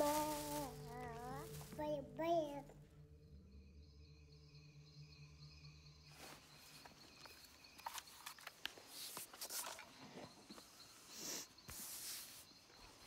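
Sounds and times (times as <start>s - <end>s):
small clicks and rustles: 6.5s - 10.7s.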